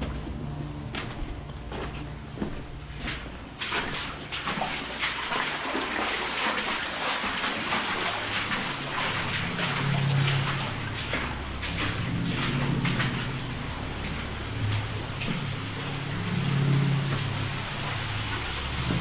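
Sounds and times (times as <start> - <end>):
water splashing and sloshing: 0.0 - 19.0.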